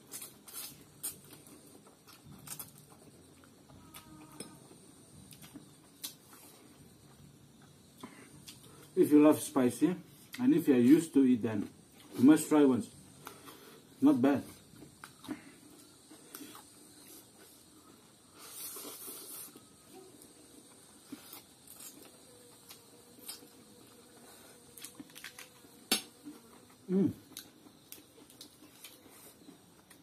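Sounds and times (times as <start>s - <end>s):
person humming: 26.8s - 27.2s.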